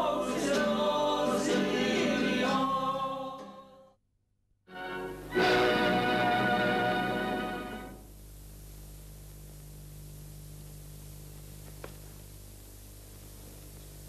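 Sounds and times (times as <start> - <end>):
film soundtrack hiss and hum: 0.0 - 3.5, 4.7 - 14.0
faint click: 11.4 - 12.2.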